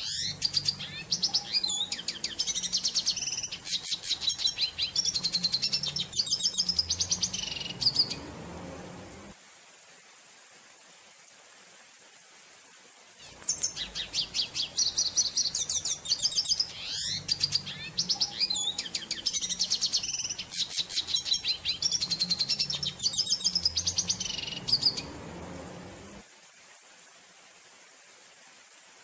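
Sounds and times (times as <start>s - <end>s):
finch twittering song: 0.0s - 9.0s, 13.2s - 26.2s.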